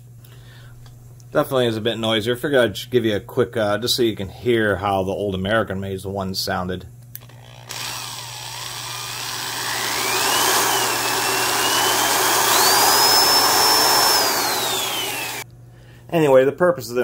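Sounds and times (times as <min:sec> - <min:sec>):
electric drill motor whine: 0:07.2 - 0:15.4.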